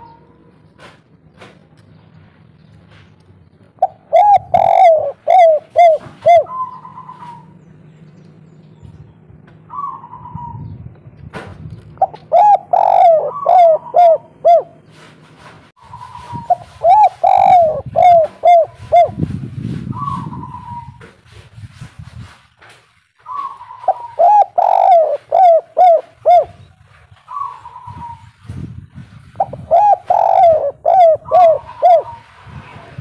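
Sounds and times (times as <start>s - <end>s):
dove cooing: 3.7s - 7.6s, 9.7s - 10.7s, 12.0s - 15.0s, 15.9s - 19.3s, 19.9s - 21.0s, 23.3s - 28.3s, 29.4s - 32.4s.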